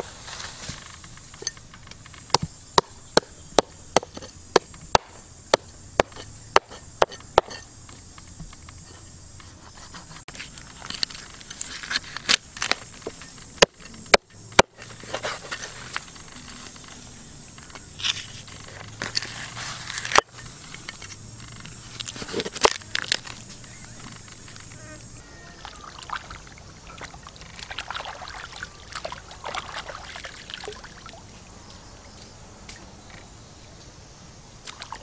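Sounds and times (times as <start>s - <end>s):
clinks and knocks: 0.7s - 4.8s.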